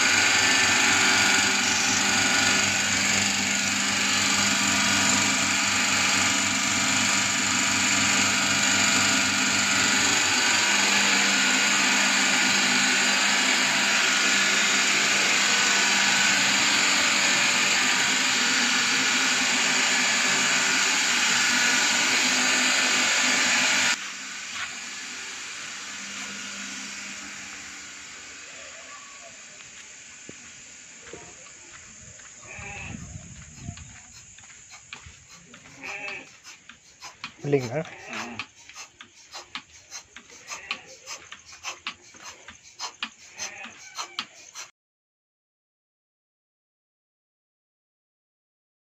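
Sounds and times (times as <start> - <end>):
vacuum pump motor whining: 0.0 - 28.5.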